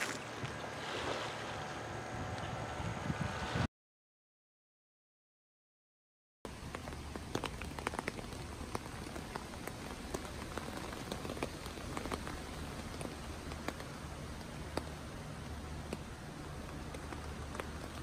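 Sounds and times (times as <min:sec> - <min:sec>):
rain pattering on tent fabric: 0:06.5 - 0:18.0
raindrops tapping on tent fly: 0:06.5 - 0:18.0.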